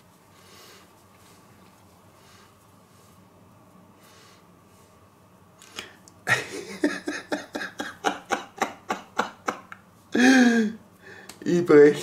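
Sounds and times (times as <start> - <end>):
man laughing: 6.3 - 10.8.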